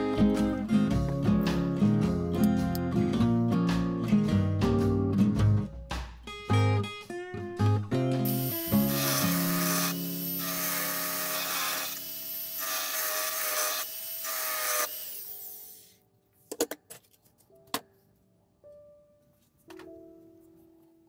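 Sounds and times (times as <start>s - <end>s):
engraving tool whine and hiss: 8.2s - 16.0s.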